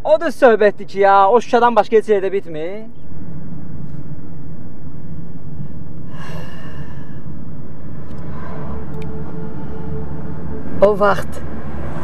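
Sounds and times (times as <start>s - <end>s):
car engine and road rumble: 0.0s - 12.0s
breathy sigh: 6.0s - 7.4s.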